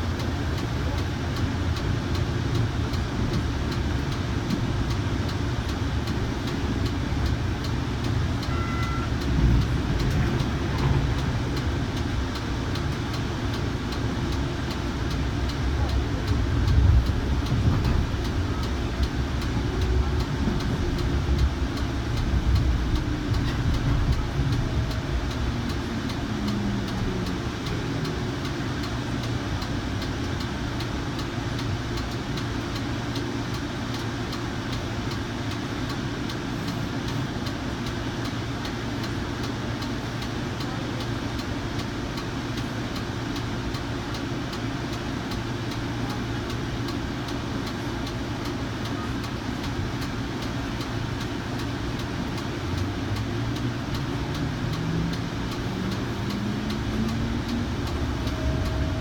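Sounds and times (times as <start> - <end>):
train equipment low hum: 0.0 - 59.0
train motor rising whine: 53.9 - 59.0.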